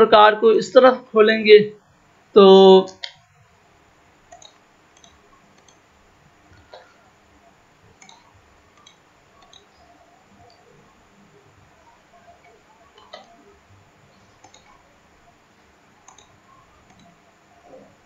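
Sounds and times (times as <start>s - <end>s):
computer mouse clicks: 2.9s - 3.3s, 4.3s - 5.9s, 7.9s - 10.8s, 12.2s - 13.5s, 14.1s - 14.9s, 16.0s - 17.9s.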